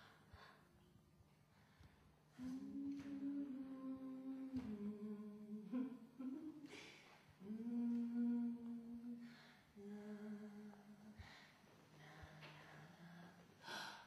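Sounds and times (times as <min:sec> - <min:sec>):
woman humming: 0:02.3 - 0:11.2.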